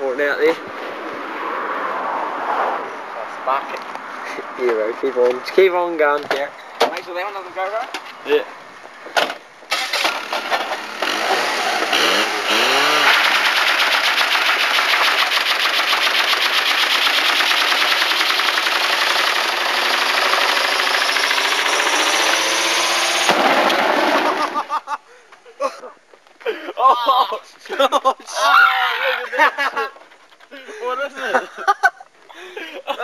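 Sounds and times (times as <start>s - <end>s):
car engine revving: 9.7s - 24.5s
wheel spinning in burnout: 9.7s - 24.6s.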